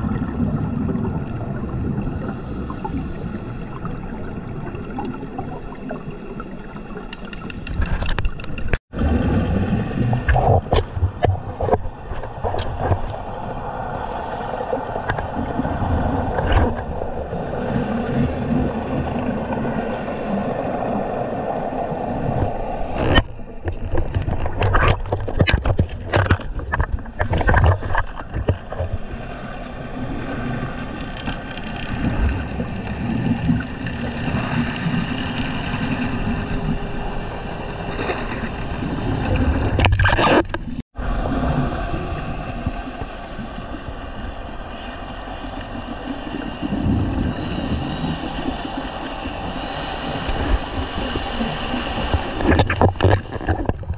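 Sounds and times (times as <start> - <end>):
underwater bubbles gurgling: 0.0 - 53.9
regulator breaths: 2.0 - 3.9
sharp crackles and knocks: 10.3 - 13.2, 23.0 - 29.0, 52.4 - 53.9.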